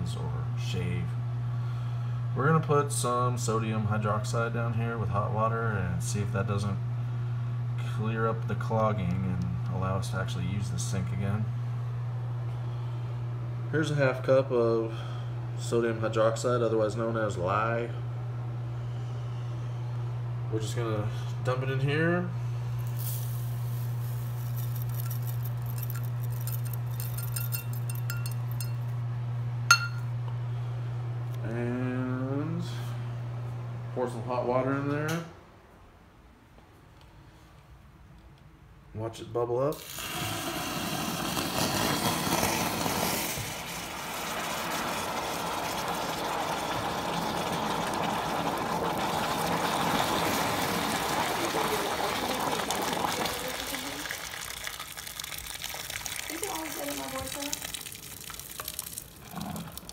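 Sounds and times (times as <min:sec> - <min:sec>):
crystals clinking into sink: 0:22.9 - 0:28.8, 0:29.7 - 0:30.0
water pouring into sink: 0:39.8 - 0:59.9.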